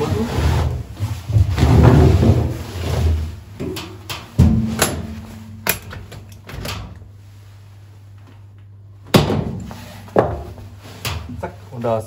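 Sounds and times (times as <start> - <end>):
enclosure door thump: 4.4 - 6.9
latches clicking and knocking: 4.7 - 7.0.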